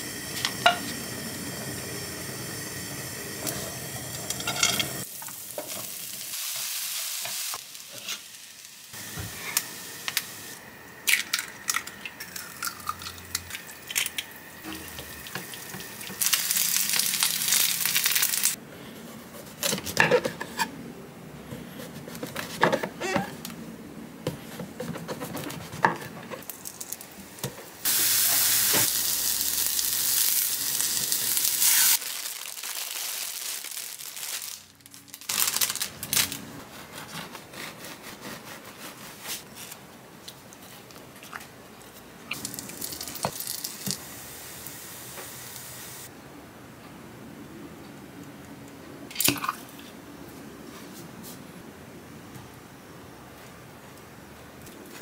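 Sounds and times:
loud steady hiss: 0.0 - 11.0, 27.1 - 34.8, 42.4 - 46.2.

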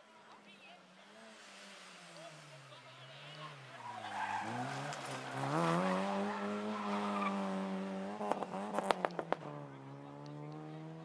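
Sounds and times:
rally car engine revving: 3.2 - 11.0.

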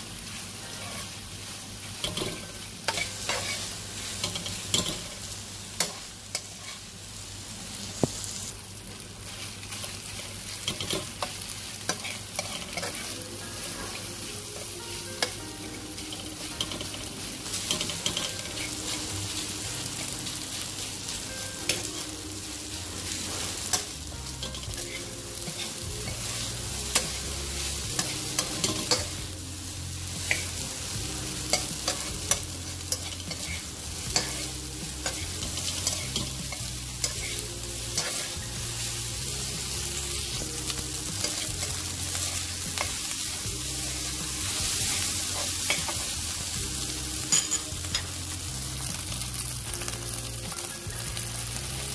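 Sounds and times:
rice sizzling in a wok: 0.0 - 51.9
metal spatula scraping wok: 31.5 - 38.5.

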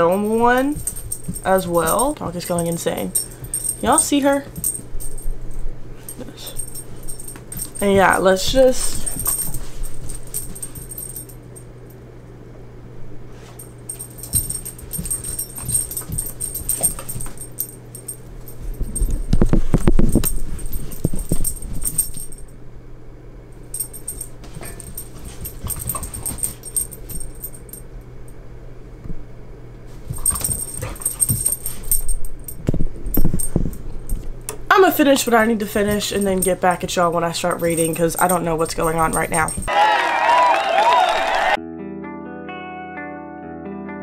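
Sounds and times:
knocks and scuffles: 6.0 - 11.3, 13.4 - 22.5, 23.8 - 27.8, 29.9 - 34.4.

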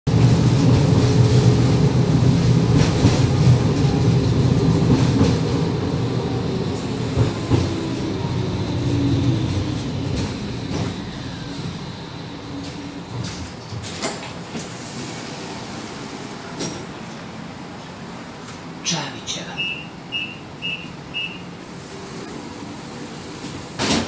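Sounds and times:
tram rumbling on rails: 0.0 - 24.0
knocks from wheels and track: 23.4 - 24.0.

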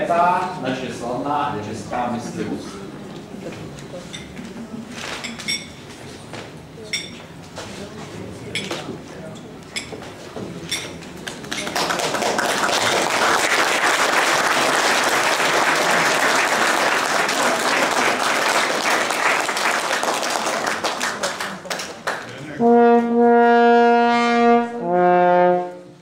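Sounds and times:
glass clinks: 5.2 - 5.8, 6.9 - 7.2
people applauding: 11.2 - 22.4.

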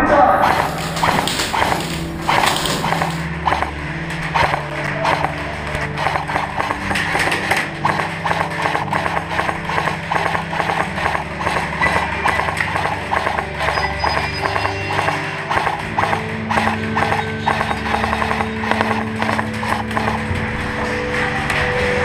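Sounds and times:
low held notes: 0.0 - 22.0
knocking clip-clop beat: 0.4 - 22.0.

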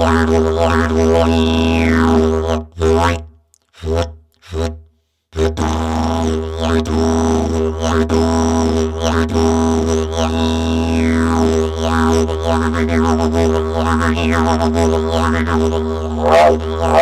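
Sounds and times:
didgeridoo drone: 5.7 - 17.0.

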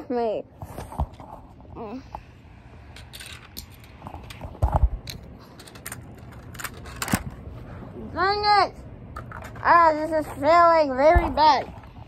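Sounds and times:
plastic pieces clicking and rattling: 3.0 - 7.3.

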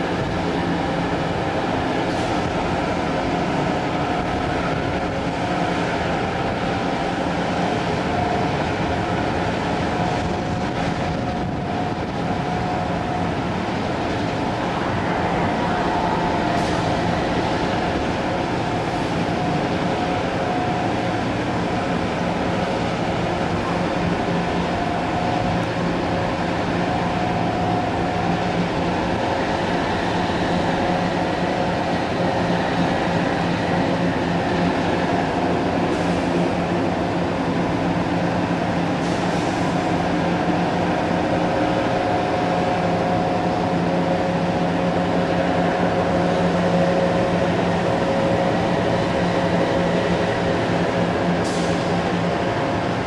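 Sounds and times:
diesel engines droning: 0.0 - 53.0.

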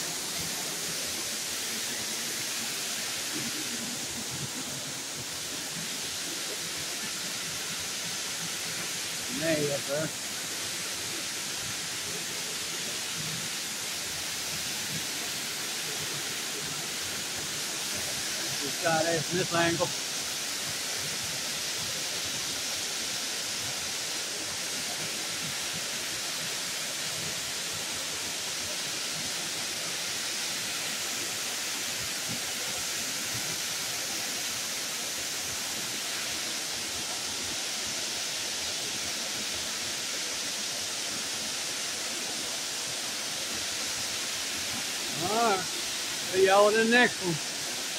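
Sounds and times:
waterfall rushing onto rock: 0.0 - 47.9.

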